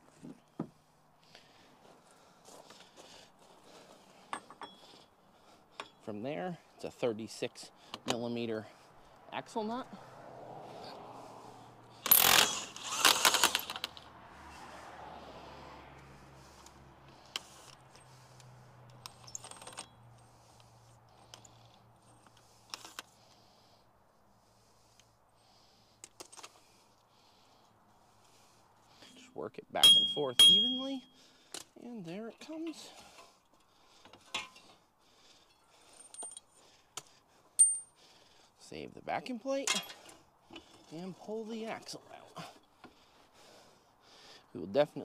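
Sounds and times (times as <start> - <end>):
metal clinks and knocks: 4.3 - 4.9, 18.9 - 20.1, 29.8 - 31.0, 33.5 - 34.8, 35.5 - 36.6, 37.6 - 38.0
quick clicks: 12.0 - 14.1
socket clinking on axle nut: 18.9 - 20.0, 29.8 - 31.0, 37.6 - 38.0
short high metal ring: 29.8 - 31.2, 37.6 - 38.0.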